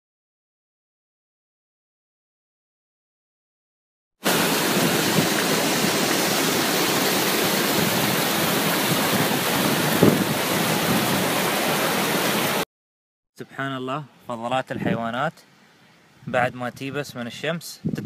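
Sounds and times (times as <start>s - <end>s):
waterfall rushing: 4.2s - 12.6s.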